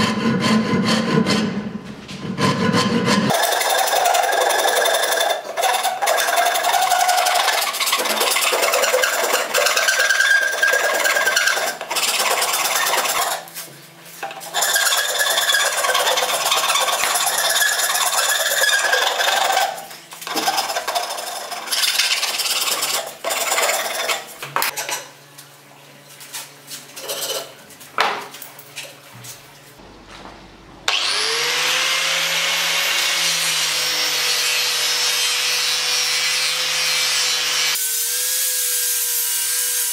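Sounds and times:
hand rasp filing wood: 0.0 - 13.6, 14.3 - 24.3
angle grinder whining: 3.2 - 13.6, 14.3 - 24.3, 29.8 - 39.9.

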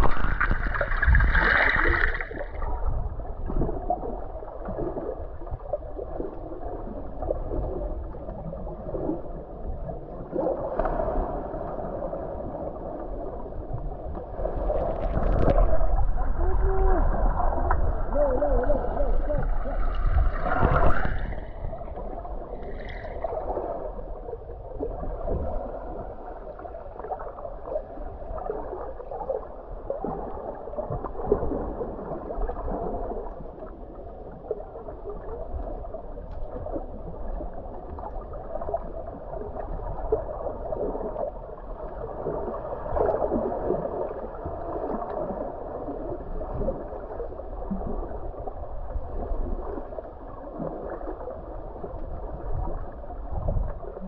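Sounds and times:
water splash: 0.0 - 2.6, 14.6 - 16.4, 19.3 - 21.7
water gurgling and sloshing: 0.0 - 54.0.

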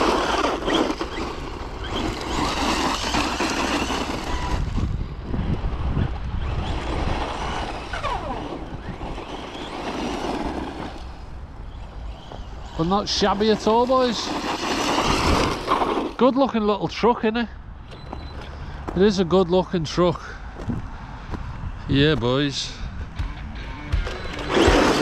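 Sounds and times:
electric motor whine: 0.0 - 16.2, 23.2 - 25.0
tyres rushing over ground: 0.0 - 17.3, 24.0 - 25.0.

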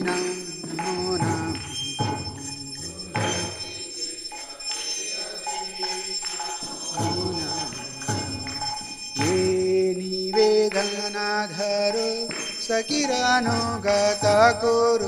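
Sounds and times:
voices singing a hymn: 0.0 - 11.1
hand bell ringing: 0.0 - 15.0.

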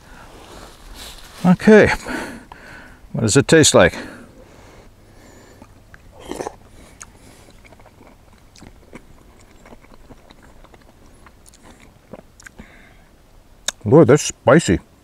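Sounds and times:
person chewing food: 5.3 - 12.8
wet mouth clicks: 5.6 - 12.6, 13.6 - 13.8.

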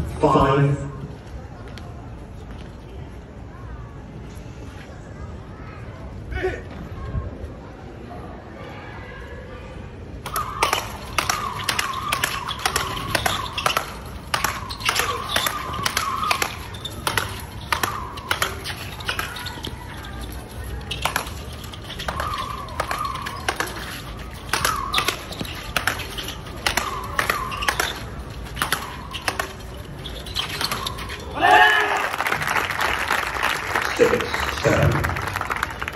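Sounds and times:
rackets striking ball: 10.2 - 31.4
short squeaky tones: 10.3 - 31.4.

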